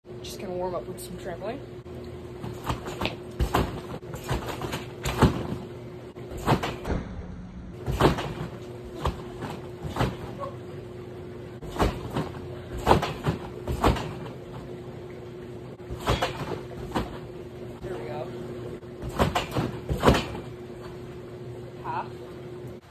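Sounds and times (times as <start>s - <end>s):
faint steady hum: 0.1s - 22.9s
thuds of bouncing on trampoline: 2.4s - 10.6s, 11.6s - 14.7s, 15.8s - 17.3s, 19.0s - 21.0s.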